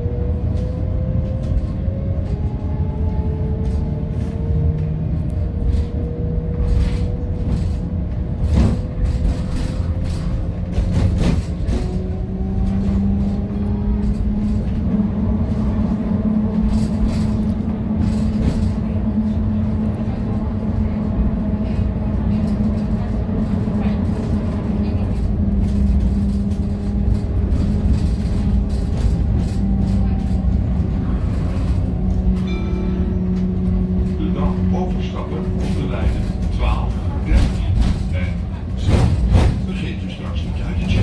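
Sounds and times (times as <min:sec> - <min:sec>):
tram motor whine: 0:00.0 - 0:41.0
tram wheels rumbling on rails: 0:00.0 - 0:41.0.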